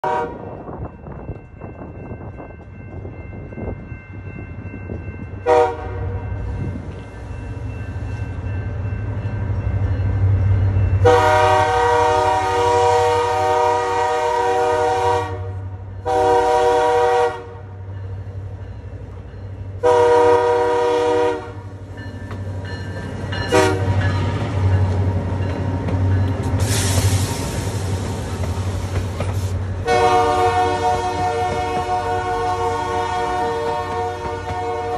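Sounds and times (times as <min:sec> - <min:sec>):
locomotive air horn blasts: 0:00.0 - 0:00.6, 0:05.4 - 0:06.2, 0:11.0 - 0:17.8, 0:19.8 - 0:21.7, 0:23.5 - 0:24.0, 0:29.8 - 0:34.9.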